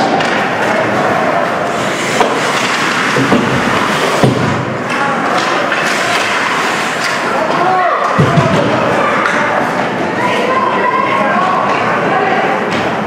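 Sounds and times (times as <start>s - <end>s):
skates on ice: 0.0s - 8.1s
spectators: 0.0s - 13.0s.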